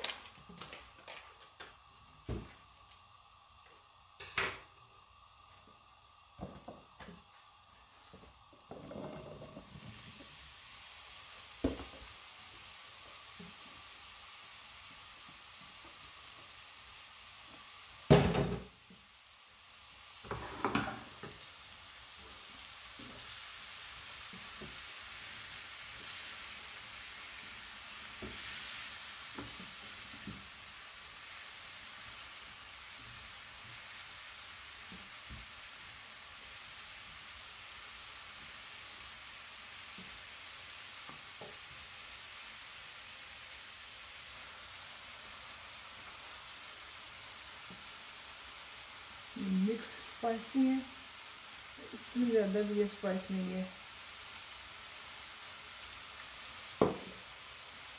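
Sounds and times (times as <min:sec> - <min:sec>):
mushrooms sizzling in butter: 0:00.0 - 0:57.9
loud knock: 0:56.8 - 0:57.1.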